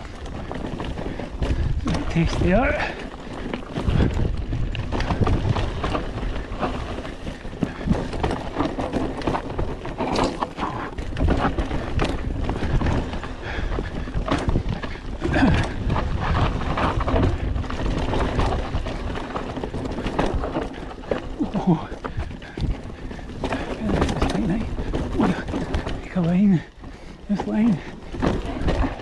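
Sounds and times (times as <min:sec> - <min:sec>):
bike rattling and knocking: 0:00.0 - 0:29.0
bike tyres on dirt and rocks: 0:00.0 - 0:29.0
wind on microphone: 0:03.7 - 0:08.3, 0:11.0 - 0:19.3.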